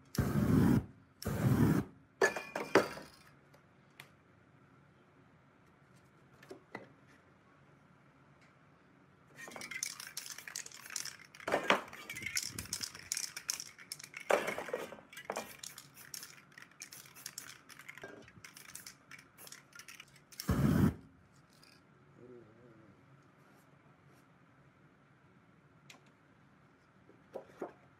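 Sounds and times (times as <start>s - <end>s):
metal cans clinking: 9.4s - 20.5s
spray paint can hissing: 9.5s - 21.0s.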